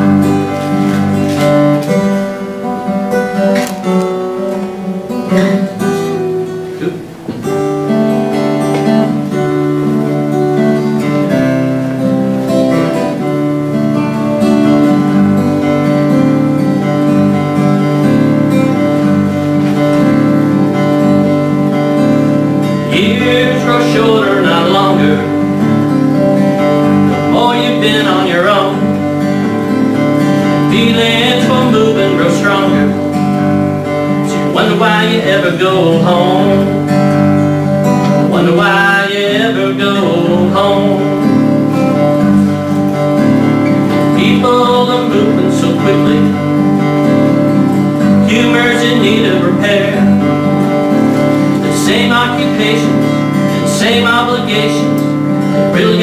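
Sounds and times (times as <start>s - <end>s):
acoustic guitar strumming: 0.0s - 56.0s
man singing: 22.7s - 25.6s, 27.0s - 29.3s, 30.4s - 33.2s, 34.1s - 37.1s, 37.8s - 41.7s, 43.8s - 46.8s, 48.0s - 56.0s.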